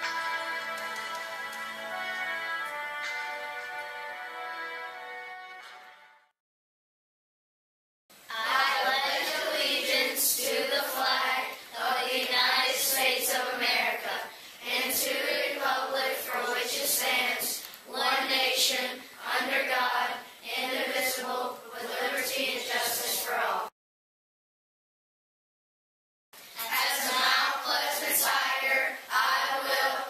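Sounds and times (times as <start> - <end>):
group of voices reciting in unison: 8.3 - 23.7, 26.6 - 30.0.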